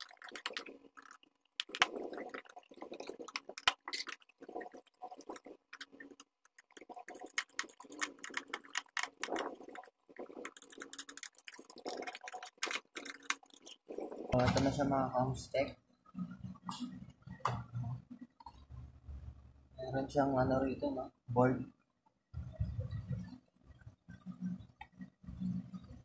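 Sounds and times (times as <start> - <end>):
plastic housing clicking and rubbing: 5.2 - 14.3.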